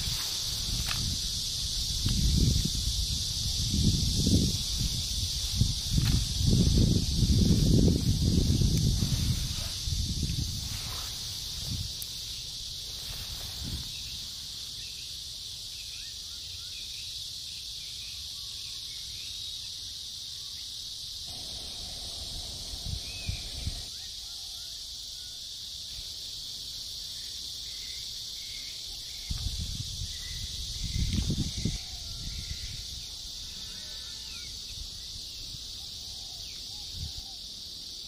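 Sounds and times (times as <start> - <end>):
high-pitched insect chorus: 0.0 - 38.0
low rumbles: 21.3 - 23.9.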